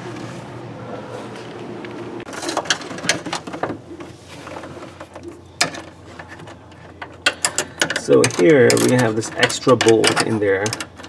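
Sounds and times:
metal hardware clinking: 0:05.0 - 0:11.0.

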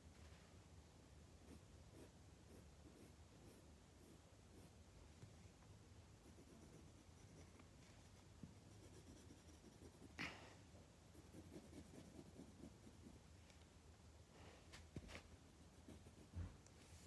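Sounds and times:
pencil scratching on paper: 0:01.4 - 0:04.8, 0:06.2 - 0:10.2, 0:11.1 - 0:13.2, 0:15.6 - 0:16.4.

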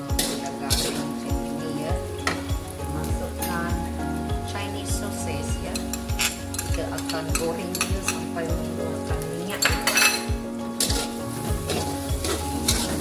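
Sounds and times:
metal spatula scraping wok: 0:00.0 - 0:01.1, 0:09.5 - 0:13.0
rice sizzling: 0:00.0 - 0:13.0.

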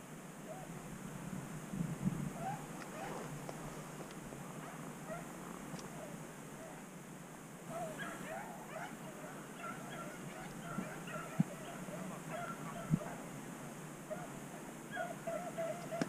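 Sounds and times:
distant hounds baying and yipping: 0:02.3 - 0:03.6, 0:04.6 - 0:06.8, 0:07.7 - 0:13.3, 0:14.1 - 0:16.0.

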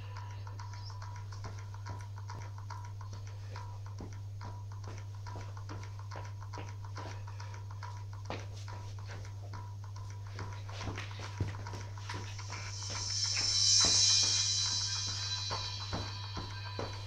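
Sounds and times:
feet shuffling on floor: 0:04.9 - 0:09.6, 0:10.2 - 0:17.0.

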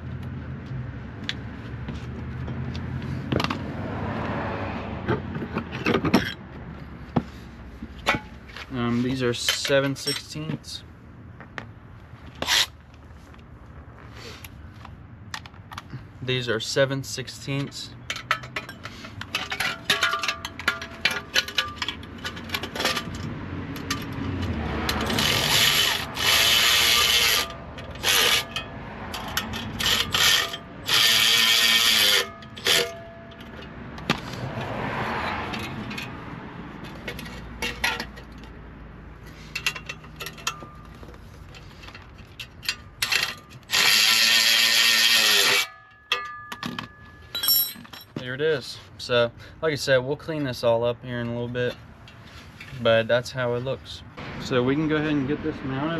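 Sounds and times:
clicks and clinks of tools: 0:39.5 - 0:43.8, 0:45.4 - 0:48.2.

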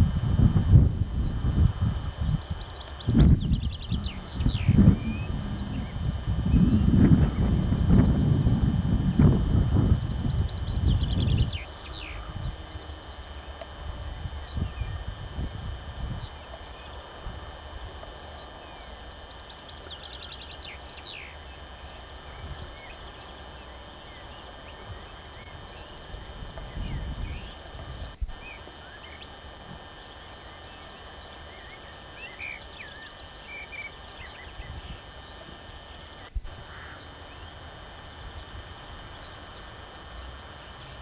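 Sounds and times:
wind rumble on microphone: 0:00.0 - 0:13.1, 0:13.8 - 0:18.0, 0:24.8 - 0:28.4
steady outdoor hiss: 0:00.0 - 0:41.0
small birds chirping: 0:01.1 - 0:41.0.

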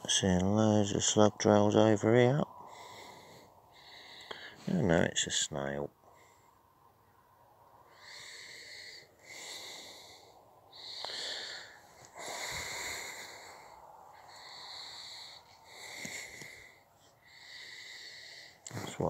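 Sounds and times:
breathing close to microphone: 0:02.5 - 0:04.8, 0:07.8 - 0:19.0.

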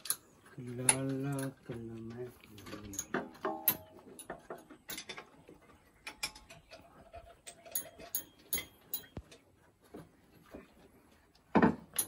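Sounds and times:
metallic clicks of hand tools: 0:07.5 - 0:09.4.

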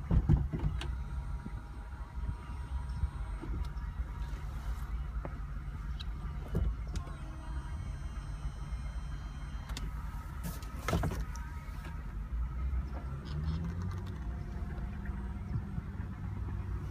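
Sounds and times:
motor hum: 0:00.0 - 0:16.9.

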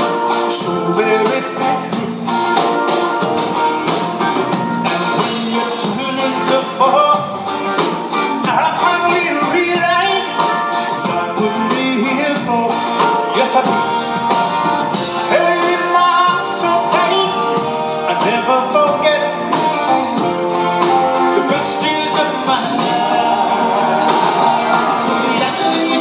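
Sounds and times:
man singing: 0:00.0 - 0:02.8, 0:04.8 - 0:07.5, 0:08.3 - 0:14.0, 0:15.0 - 0:20.0, 0:21.2 - 0:26.0
band playing pop ballad: 0:00.0 - 0:26.0
electric guitar: 0:00.0 - 0:26.0.

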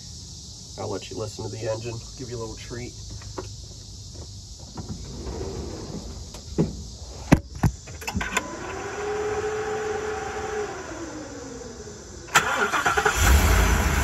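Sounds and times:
small electric motor whine: 0:08.1 - 0:12.2.

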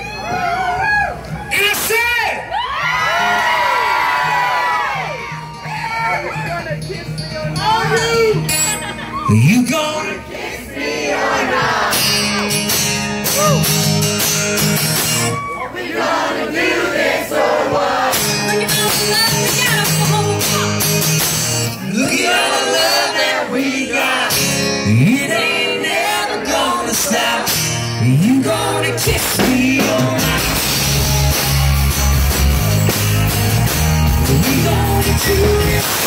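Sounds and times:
live country band playing: 0:00.0 - 0:15.7, 0:16.4 - 0:36.0
man and woman singing: 0:21.8 - 0:30.8, 0:34.2 - 0:36.0.

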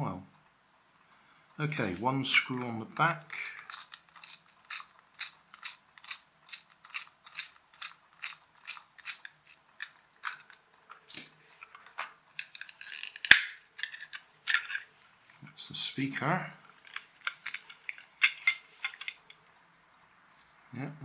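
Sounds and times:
plastic shell snapping: 0:11.9 - 0:14.6.

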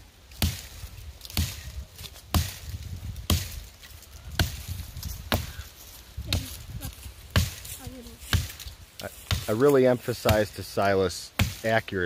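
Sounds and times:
hatchet chopping tree trunk: 0:00.3 - 0:05.6, 0:07.3 - 0:10.6, 0:11.3 - 0:11.8.

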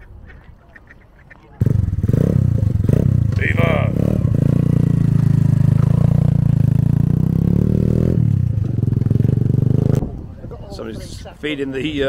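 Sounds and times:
minibike engine riding off: 0:01.6 - 0:10.1.

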